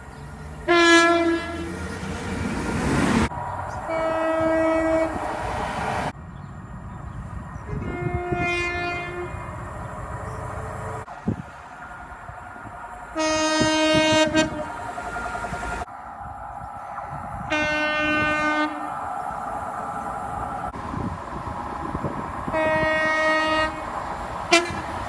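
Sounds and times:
low rumble of approaching train: 0.0s - 25.0s
train horn blasts: 0.6s - 2.2s, 3.8s - 5.4s, 7.7s - 9.6s, 13.1s - 15.9s, 17.4s - 19.0s, 22.5s - 25.0s.

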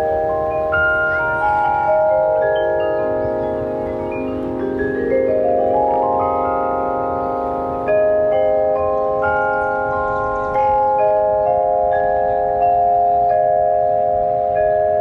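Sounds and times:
cascade of ringing notes: 0.0s - 15.0s.

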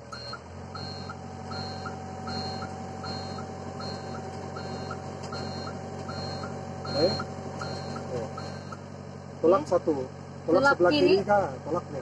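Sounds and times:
diesel engine running: 0.0s - 12.0s
excavator travel alarm beeping: 0.1s - 8.8s.

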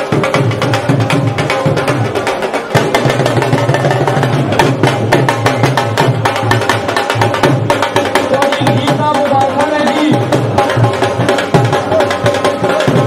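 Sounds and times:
drums beaten fast: 0.0s - 13.0s.

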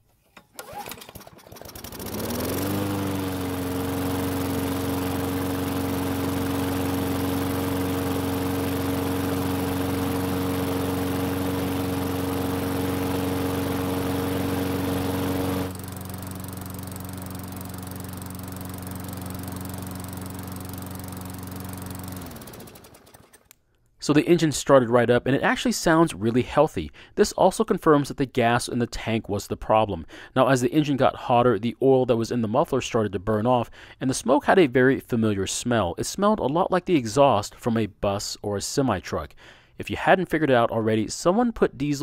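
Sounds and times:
lawn mower engine: 0.0s - 23.5s.

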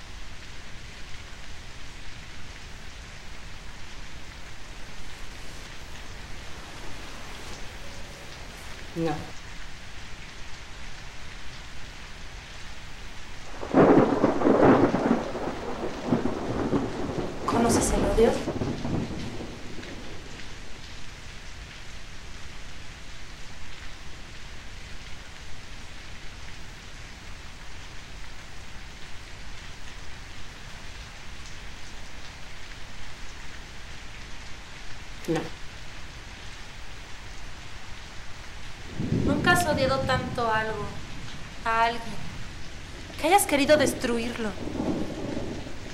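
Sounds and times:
steady rain: 0.0s - 45.9s
thunder rolling: 4.5s - 9.4s, 13.4s - 20.5s, 38.6s - 45.9s.

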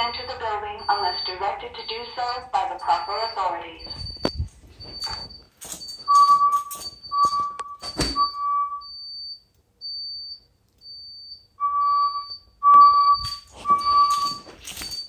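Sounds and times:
fire alarm tone pulses: 0.0s - 15.0s
short high-pitched beep: 6.0s - 9.0s, 11.6s - 15.0s.

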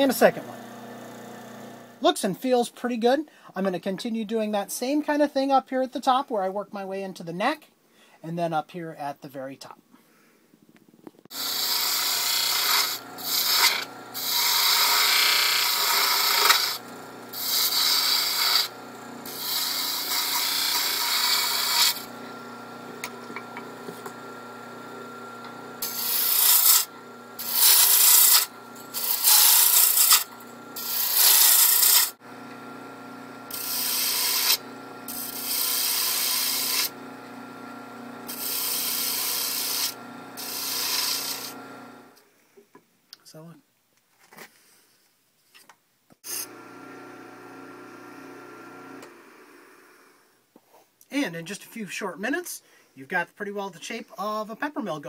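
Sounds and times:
lathe motor hum: 0.0s - 2.0s, 11.4s - 42.2s, 46.4s - 50.1s
gouge hissing on spinning wood: 11.4s - 22.1s, 25.8s - 32.2s, 33.5s - 36.9s, 38.2s - 41.6s.

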